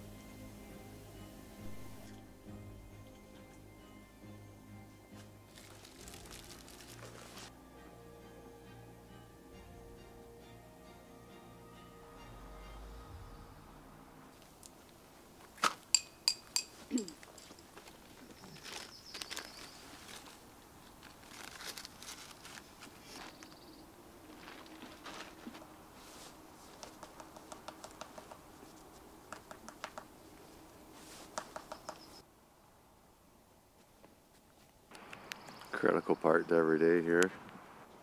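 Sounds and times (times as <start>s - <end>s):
rustling and crinkling of gear: 5.2s - 7.5s, 16.8s - 27.0s.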